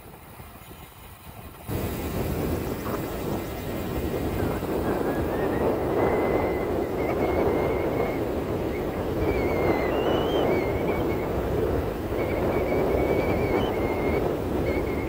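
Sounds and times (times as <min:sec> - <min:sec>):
road noise: 0:00.0 - 0:10.4
wind on microphone: 0:00.0 - 0:15.0
faint high whistle: 0:04.4 - 0:15.0.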